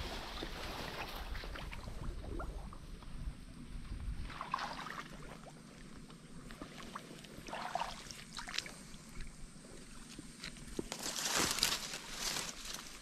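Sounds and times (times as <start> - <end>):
water splashing: 4.2 - 5.9, 6.5 - 9.2.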